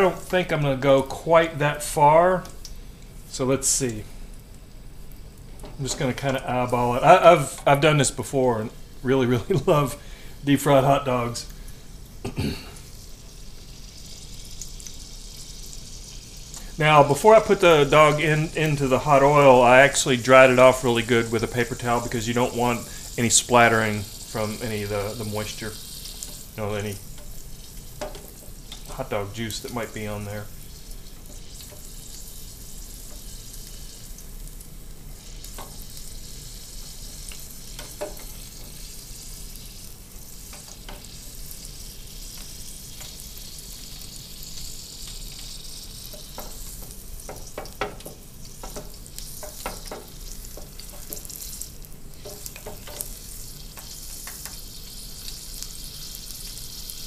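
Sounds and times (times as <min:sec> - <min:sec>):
hot dog sizzling in oil: 0:00.0 - 0:57.0
oil pops and crackles: 0:42.3 - 0:55.4.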